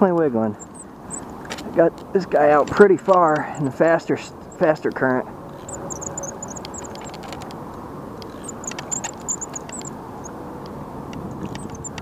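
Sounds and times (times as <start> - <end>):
light ticks: 4.8 - 12.0
fishing reel whirring: 5.5 - 7.4, 8.2 - 10.3, 11.3 - 12.0.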